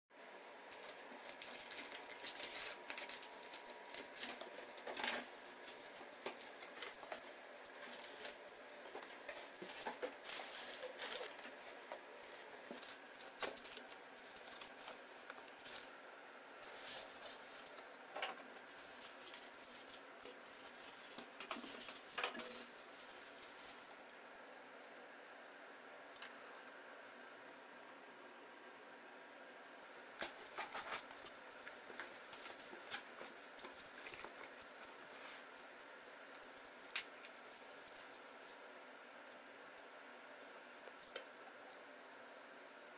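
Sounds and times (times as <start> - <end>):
cardboard rustling and scraping: 0.7 - 24.0, 30.0 - 35.8.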